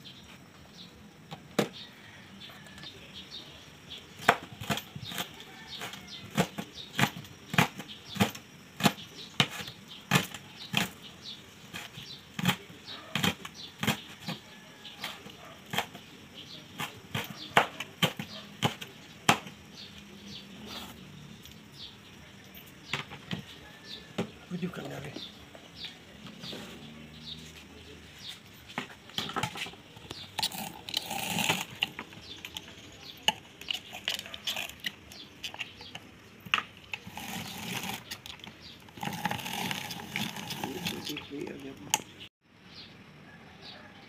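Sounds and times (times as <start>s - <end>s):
knife chopping on plastic board: 4.2s - 11.0s, 11.7s - 14.4s, 16.7s - 19.6s.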